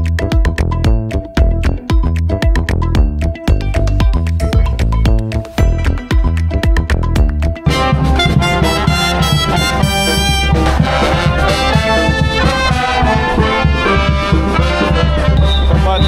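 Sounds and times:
brass band playing: 0:07.6 - 0:16.0.

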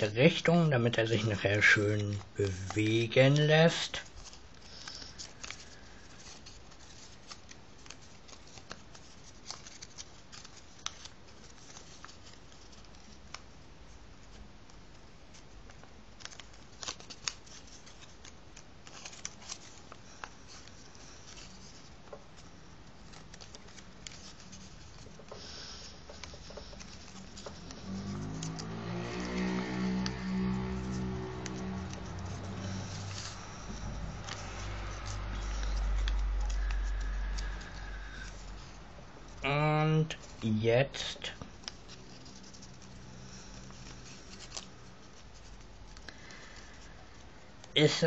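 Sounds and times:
paper crinkling: 0:00.0 - 0:48.0.

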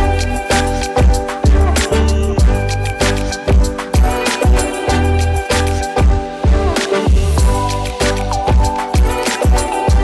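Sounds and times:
held keyboard chords: 0:00.0 - 0:10.0
deep kick drum: 0:01.0 - 0:01.7, 0:06.0 - 0:07.7.

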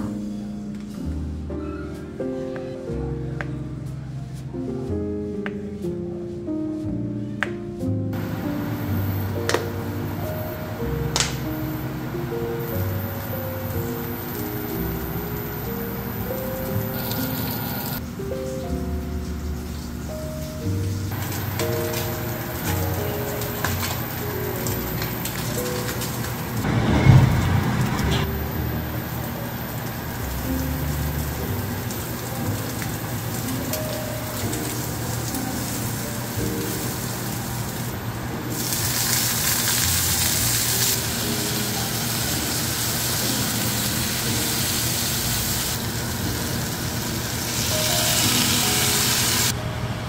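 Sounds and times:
soft background music: 0:00.0 - 0:50.0
vegetables sizzling in frying pan: 0:21.1 - 0:26.6, 0:28.4 - 0:37.9, 0:38.5 - 0:49.5.

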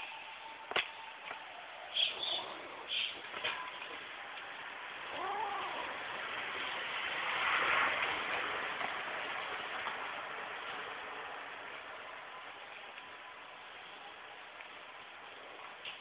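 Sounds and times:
steady hiss: 0:00.0 - 0:16.0
kitten meowing: 0:05.1 - 0:05.9.

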